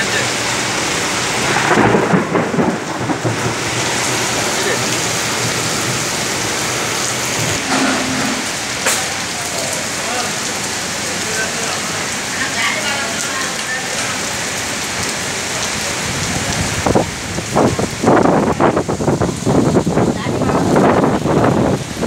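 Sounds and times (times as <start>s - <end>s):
heavy rain on leaves and paving: 0.0s - 22.0s
thunder rumble: 1.3s - 10.0s.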